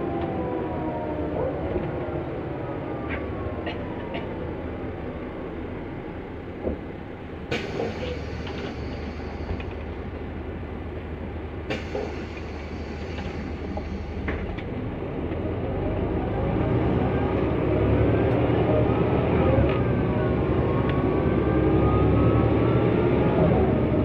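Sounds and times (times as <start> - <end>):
bus engine running: 0.0 - 24.0.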